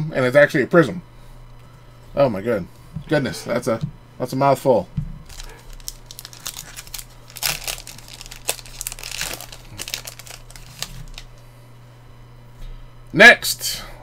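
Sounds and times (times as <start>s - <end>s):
plastic wrapper crinkling: 5.2s - 11.4s.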